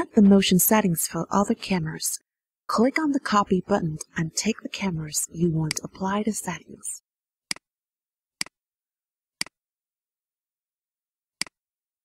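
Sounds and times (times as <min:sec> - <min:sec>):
computer mouse clicks: 0:11.4 - 0:11.6.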